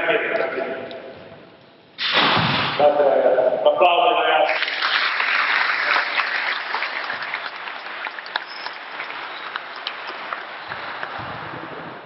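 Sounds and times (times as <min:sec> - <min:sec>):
audience applauding: 0:04.5 - 0:11.2.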